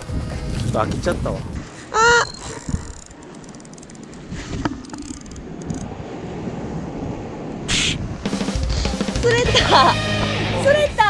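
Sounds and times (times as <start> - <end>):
wind on microphone: 0.0 - 3.2, 4.1 - 8.9
fishing reel winding: 2.4 - 4.2, 4.8 - 5.8.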